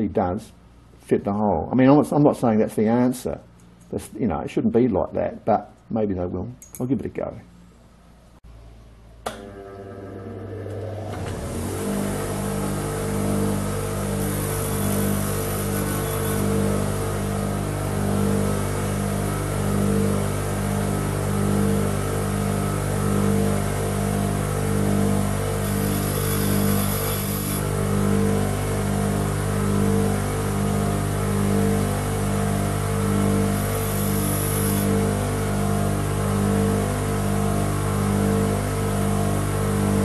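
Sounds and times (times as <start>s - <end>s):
bench grinder humming: 9.3s - 40.0s.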